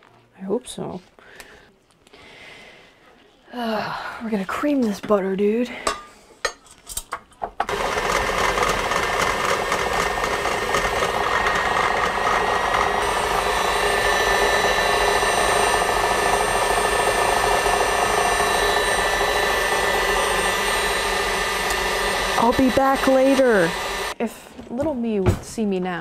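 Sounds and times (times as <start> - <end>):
electric mixer motor whine: 7.7 - 24.2.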